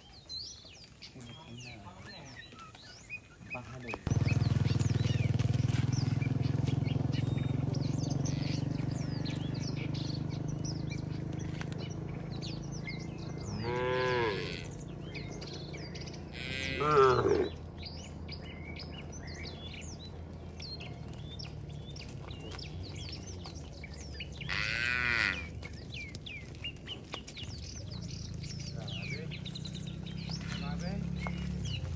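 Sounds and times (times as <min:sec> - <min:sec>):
small birds chirping: 0:00.0 - 0:31.9
cattle mooing: 0:08.0 - 0:08.7, 0:13.4 - 0:14.8, 0:16.3 - 0:17.6, 0:24.4 - 0:25.6.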